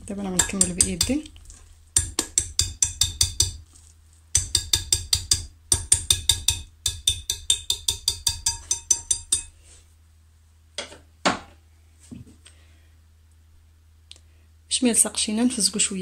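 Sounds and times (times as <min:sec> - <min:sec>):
whisk clicking against glass bowl: 0:00.4 - 0:01.2, 0:04.4 - 0:09.5.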